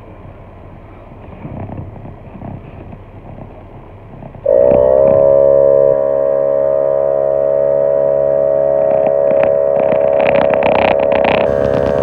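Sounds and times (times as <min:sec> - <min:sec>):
air compressor droning: 0:04.4 - 0:12.0.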